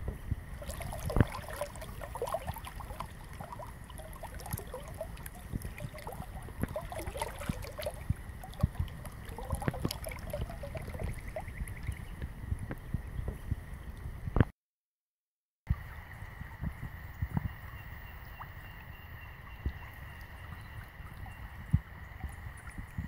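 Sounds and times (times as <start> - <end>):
river water gurgling: 0.4 - 12.2.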